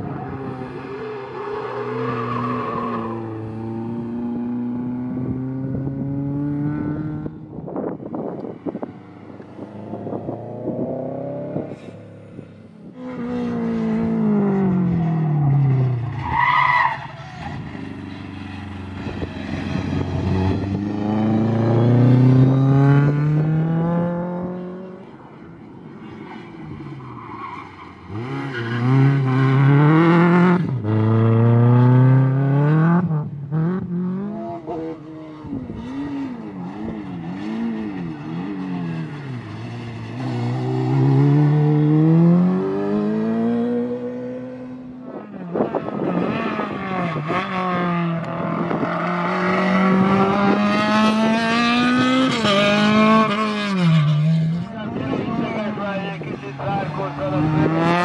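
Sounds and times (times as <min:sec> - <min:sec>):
rally car engines revving past: 0:00.0 - 0:58.0
tyre squeal: 0:16.1 - 0:18.3.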